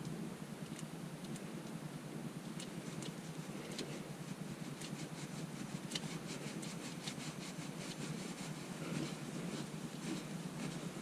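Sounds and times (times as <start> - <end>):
cloth rubbing: 2.9 - 11.0.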